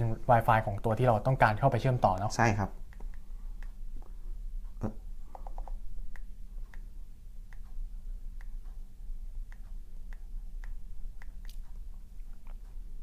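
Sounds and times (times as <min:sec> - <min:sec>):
low steady hum: 0:00.0 - 0:13.0
light touchscreen typing clicks: 0:04.8 - 0:06.9.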